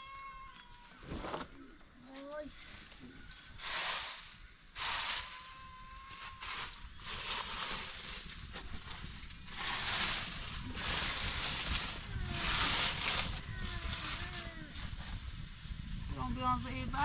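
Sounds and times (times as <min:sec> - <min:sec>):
dry leaves rustling and crunching: 0:02.1 - 0:15.1.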